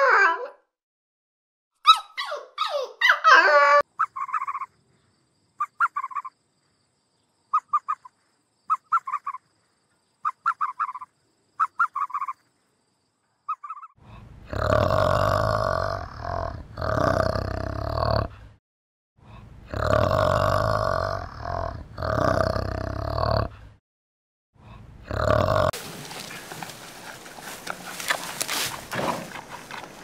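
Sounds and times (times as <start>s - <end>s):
dog yipping and whining: 0.0s - 0.6s, 1.8s - 4.6s
short chirping calls: 5.6s - 6.4s, 7.5s - 9.5s, 10.2s - 12.5s, 13.5s - 14.0s.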